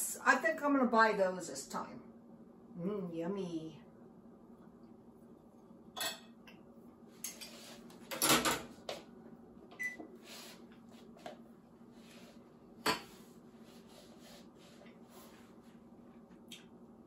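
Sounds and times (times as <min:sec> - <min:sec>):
dishes and utensils clattering: 0:06.0 - 0:06.4.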